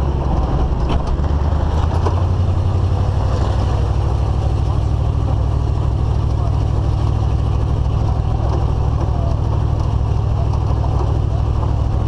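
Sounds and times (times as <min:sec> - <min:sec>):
road noise: 0:00.0 - 0:12.0
vehicle engine rumble: 0:00.0 - 0:12.0.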